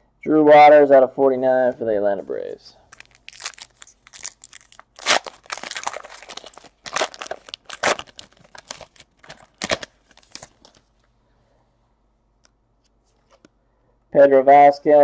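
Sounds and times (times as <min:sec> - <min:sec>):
foil wrapper tearing and crinkling: 0:02.9 - 0:10.8.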